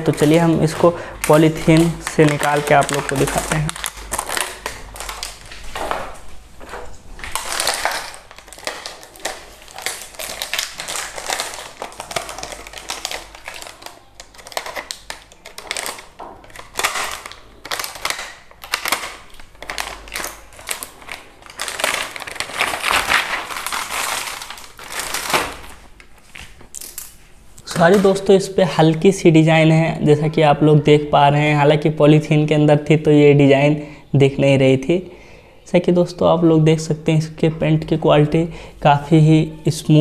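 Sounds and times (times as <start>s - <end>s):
plastic wrapping crinkling: 0.0s - 28.3s.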